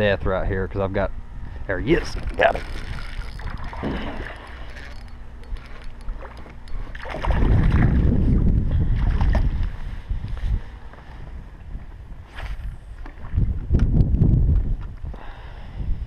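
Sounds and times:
fish splashing: 2.1s - 8.1s
heavy low rumble: 7.0s - 14.8s.

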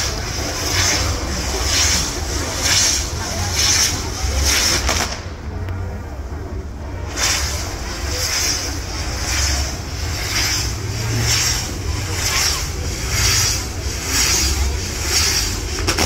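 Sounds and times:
fireworks hissing and crackling: 0.0s - 16.0s
low rumble: 0.0s - 16.0s.

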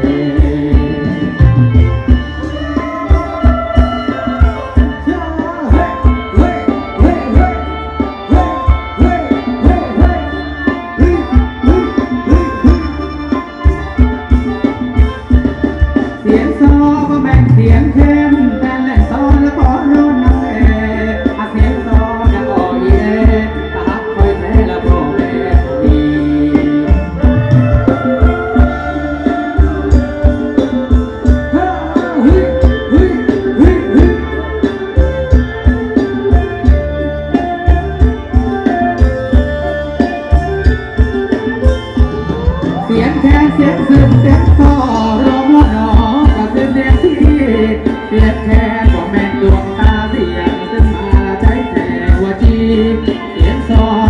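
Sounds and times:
steady drum beat: 0.0s - 54.0s
sustained melody with bending notes: 0.0s - 54.0s.

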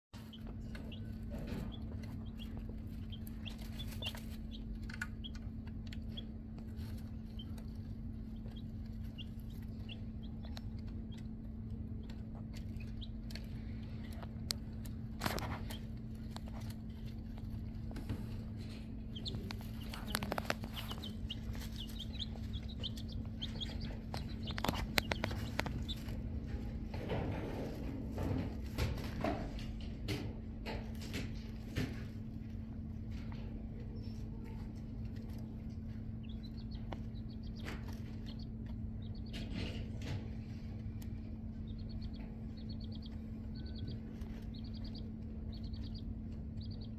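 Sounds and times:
chicks peeping: 0.2s - 46.9s
pecking on plastic feeder: 0.2s - 46.9s
steady low hum: 0.2s - 46.9s.

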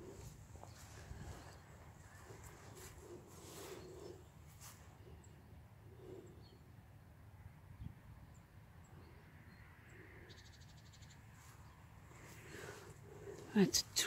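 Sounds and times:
distant bird calls: 0.0s - 13.8s.

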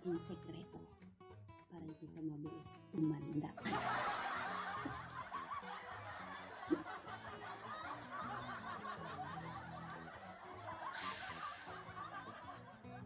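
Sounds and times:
quiet guitar music: 0.0s - 13.0s
woman laughing softly: 6.7s - 7.0s, 10.8s - 12.0s.

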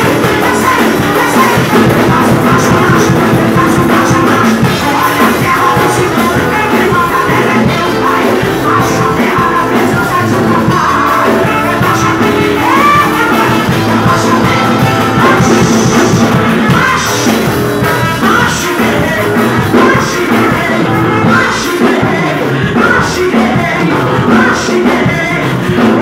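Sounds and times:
loud amplified band music: 0.0s - 26.0s
woman singing into a microphone: 0.0s - 26.0s.

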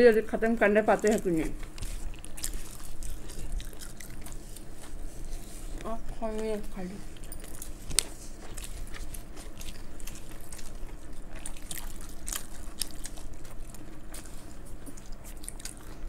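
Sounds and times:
people chewing food: 0.0s - 16.0s
fingers squishing through gravy: 0.8s - 16.0s.

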